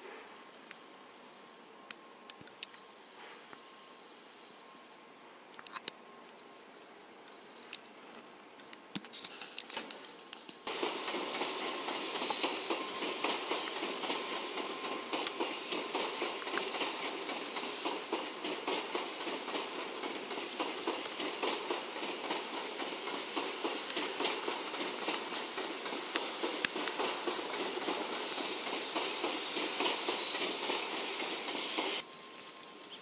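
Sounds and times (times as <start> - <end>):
sharp clicks over track: 9.0 - 32.0
train wheels rumbling on rail: 9.6 - 33.0.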